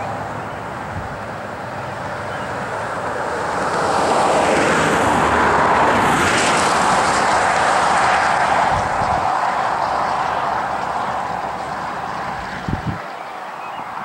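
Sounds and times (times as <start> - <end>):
cars passing on highway: 0.0 - 14.0.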